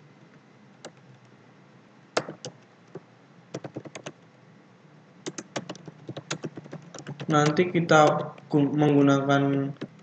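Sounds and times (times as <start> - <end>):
computer keyboard typing: 2.2 - 2.6, 3.5 - 4.2, 5.2 - 10.0.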